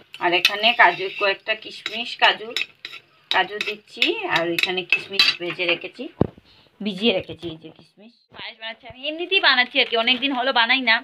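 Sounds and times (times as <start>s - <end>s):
metal spoon scraping a metal pan: 0.2s - 6.0s.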